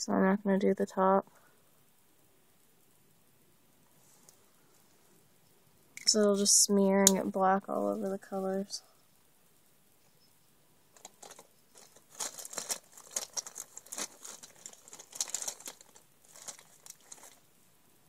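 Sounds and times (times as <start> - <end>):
packaging crinkling: 10.9 - 17.5.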